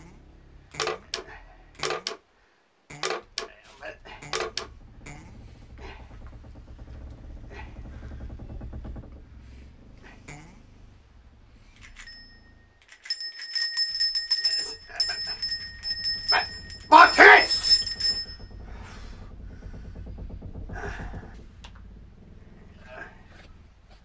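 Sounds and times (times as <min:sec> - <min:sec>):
small bell ringing rapidly: 0:11.8 - 0:18.6.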